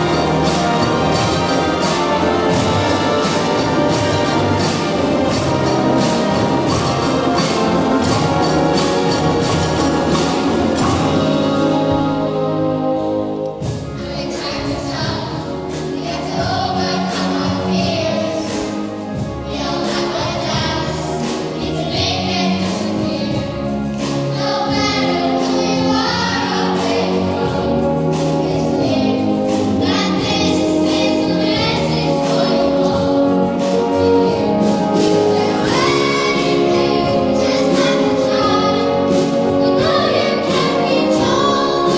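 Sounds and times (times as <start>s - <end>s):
hand drums: 0.0s - 12.3s
children's choir singing: 0.0s - 41.9s
symphony orchestra: 0.0s - 41.9s.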